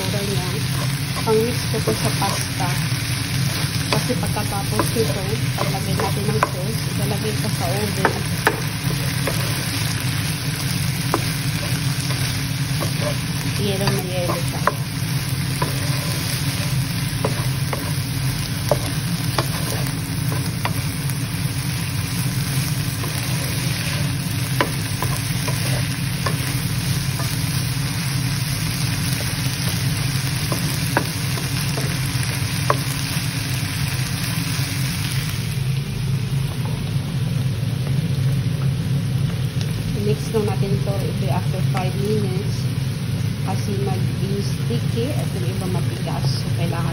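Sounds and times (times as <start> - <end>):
food sizzling in frying pan: 0.0 - 46.9
wooden spatula scraping pan: 11.0 - 20.8, 23.0 - 26.6.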